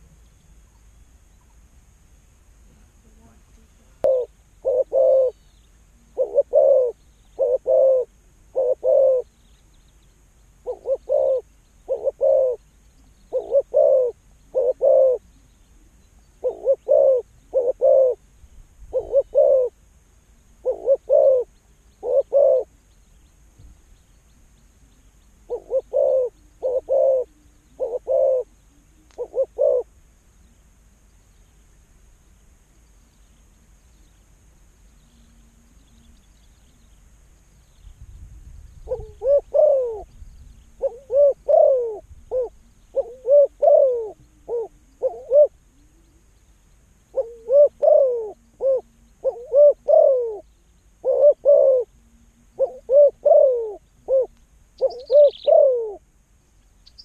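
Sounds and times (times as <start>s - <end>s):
dove cooing: 3.2s - 9.4s, 10.6s - 18.2s, 18.9s - 19.8s, 20.5s - 22.8s, 24.8s - 30.5s, 38.8s - 46.4s, 47.1s - 56.1s.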